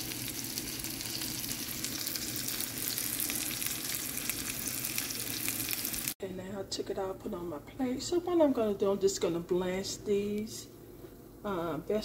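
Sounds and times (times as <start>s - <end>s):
meat sizzling in a pan: 0.0s - 6.2s.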